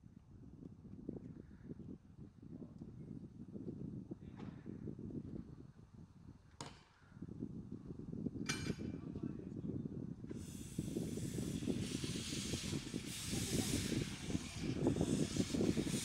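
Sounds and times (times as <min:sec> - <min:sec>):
steam locomotive hissing: 0:10.3 - 0:16.0.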